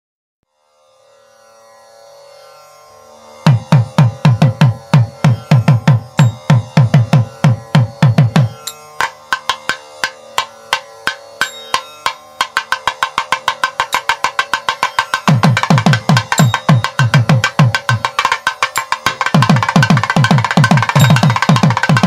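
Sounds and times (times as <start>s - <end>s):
deep drum strokes: 3.5s - 9.6s, 15.2s - 18.3s, 19.0s - 22.0s.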